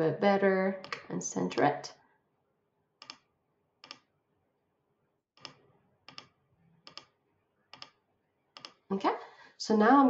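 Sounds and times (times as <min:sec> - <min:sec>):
computer mouse clicks: 0:00.8 - 0:01.7, 0:03.0 - 0:04.1, 0:05.4 - 0:08.0, 0:08.6 - 0:08.8.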